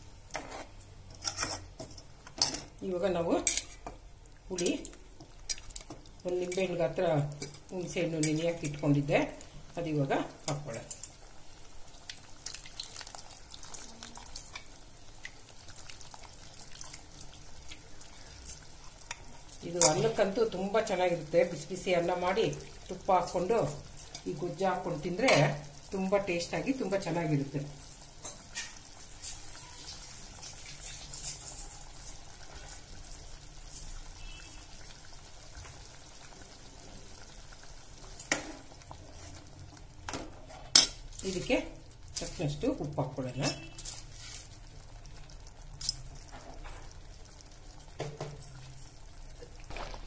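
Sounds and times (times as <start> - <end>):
curry bubbling in a pan: 2.7 - 50.0
ladle stirring bubbling curry: 10.4 - 21.4.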